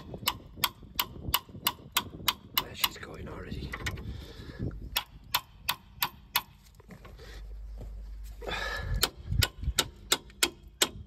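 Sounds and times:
hammer striking wrench: 4.9s - 6.6s, 9.0s - 11.0s.

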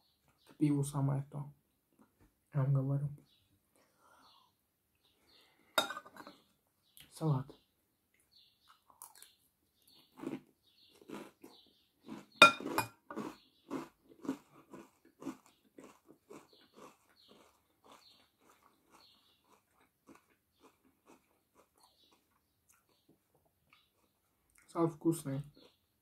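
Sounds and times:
chewing crunchy salad: 8.1s - 24.8s.

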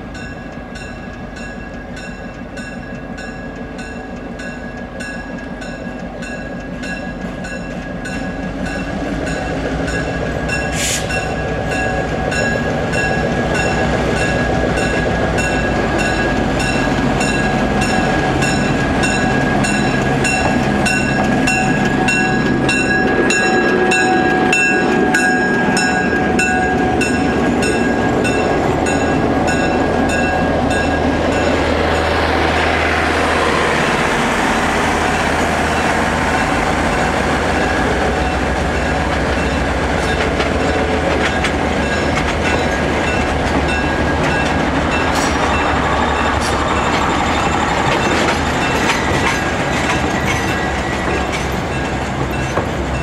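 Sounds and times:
locomotive bell ringing: 0.0s - 32.7s, 33.4s - 53.0s
air hiss: 10.7s - 11.2s.

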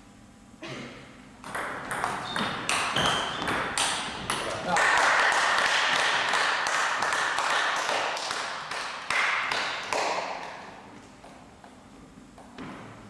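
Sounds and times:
table tennis ball bouncing on floor: 1.4s - 4.7s.

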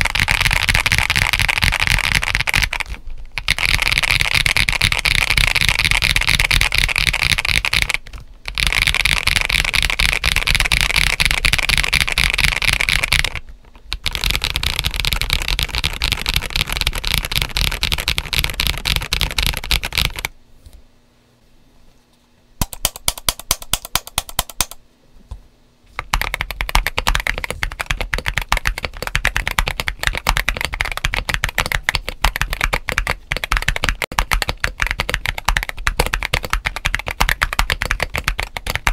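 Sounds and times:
fast typing on mechanical keyboard: 0.0s - 20.3s, 22.6s - 24.8s, 26.0s - 38.9s.

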